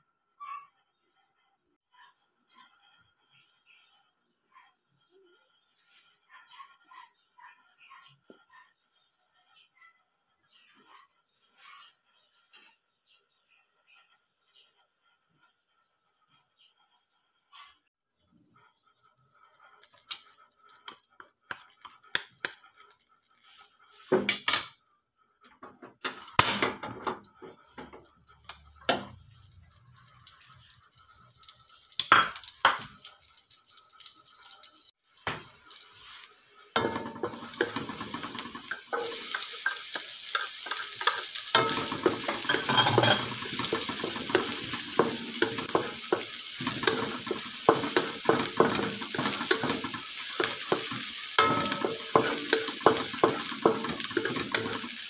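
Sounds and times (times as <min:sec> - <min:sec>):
garlic sizzling in hot oil: 0:18.1 - 0:24.8, 0:25.4 - 0:55.0
wooden spatula scraping a pan: 0:35.7 - 0:55.0
utensils clinking against a wok: 0:36.7 - 0:55.0.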